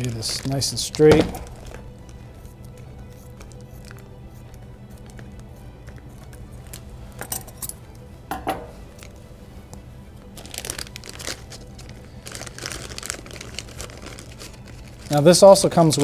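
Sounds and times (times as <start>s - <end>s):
plastic bag crinkling: 0.0s - 2.2s, 10.2s - 16.0s.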